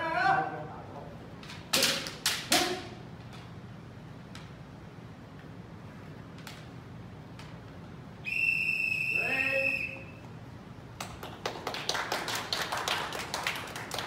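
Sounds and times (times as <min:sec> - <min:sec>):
whistle blowing: 0:08.2 - 0:10.3
hand clapping: 0:11.0 - 0:14.0.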